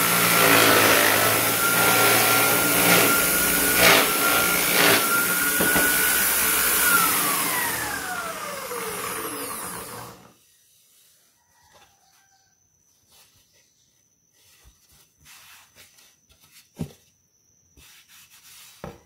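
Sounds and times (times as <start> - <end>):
wood knocking against wood: 5.6 - 6.0
hands rubbing wood surface: 17.8 - 19.0.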